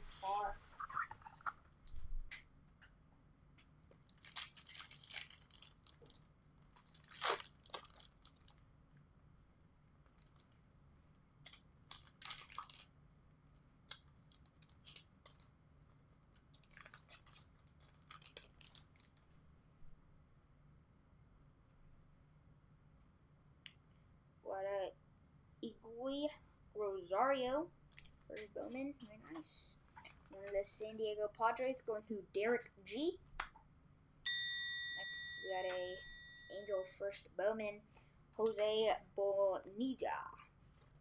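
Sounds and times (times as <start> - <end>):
plastic wrapper crinkling and ripping: 3.9 - 8.6, 10.0 - 19.3.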